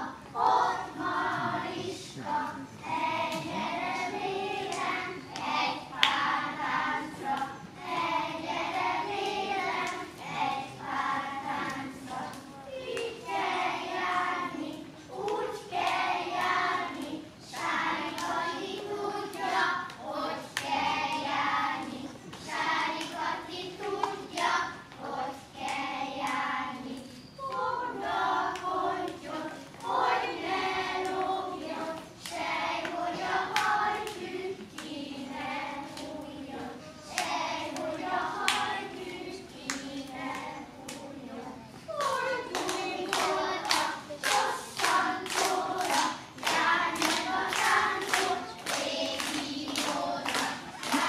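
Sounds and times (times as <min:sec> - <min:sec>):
young children singing: 0:00.0 - 0:51.0
sharp claps or stamps: 0:42.0 - 0:51.0.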